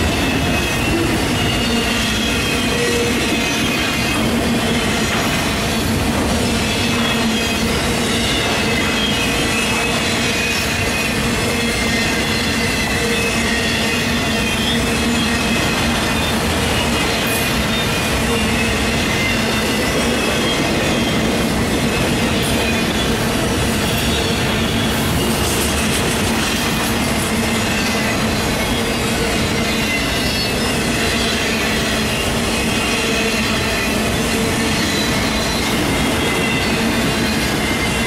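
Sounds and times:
high-pitched wheel squeal: 0.0s - 38.0s
train wheels rumbling on rails: 0.0s - 38.0s.

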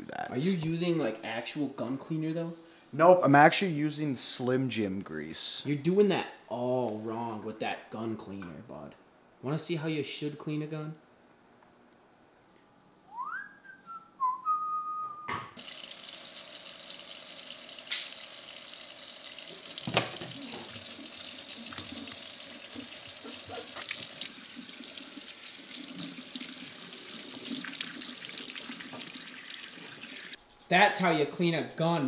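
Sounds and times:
whistled note: 13.1s - 15.5s
faucet water splashing in sink: 15.6s - 30.4s.

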